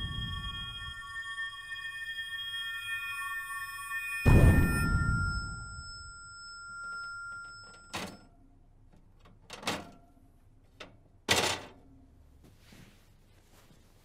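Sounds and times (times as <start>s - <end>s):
high electronic tones: 0.0s - 7.7s.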